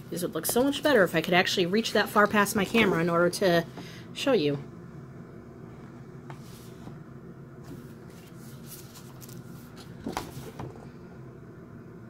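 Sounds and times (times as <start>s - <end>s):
steady low hum: 0.0s - 12.0s
paper rustling and sliding: 6.3s - 7.0s, 7.6s - 10.8s.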